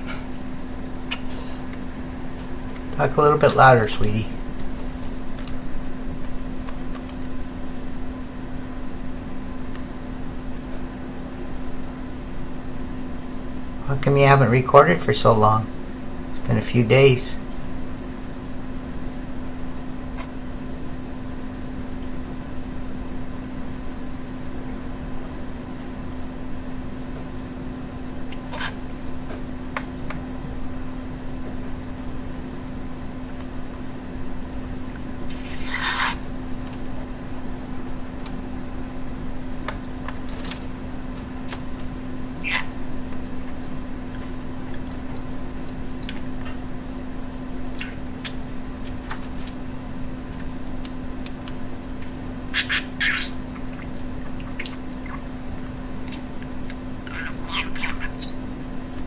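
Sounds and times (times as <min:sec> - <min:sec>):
steady low hum: 0:00.0 - 0:59.0
budgerigar chirps and clicks: 0:42.4 - 0:42.8, 0:47.7 - 0:48.0, 0:52.5 - 0:55.2, 0:57.1 - 0:58.4.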